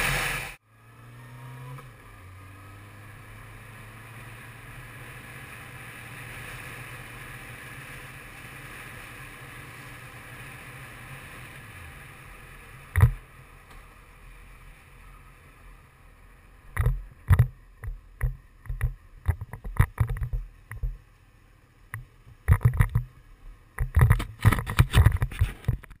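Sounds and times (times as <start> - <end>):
muffled motorcycle engine: 0.0 - 26.0
irregular knocks and bumps: 21.9 - 23.1
wind noise: 23.8 - 26.0.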